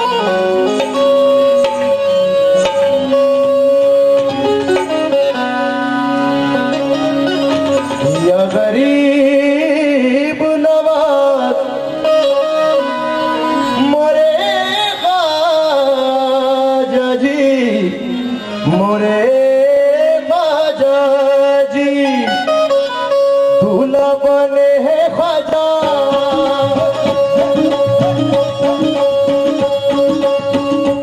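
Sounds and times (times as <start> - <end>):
hand drum strokes: 0.0 - 8.6, 25.4 - 31.0
harmonium: 0.0 - 31.0
man singing ornamented vocal: 8.0 - 12.1, 13.5 - 22.7, 23.6 - 31.0.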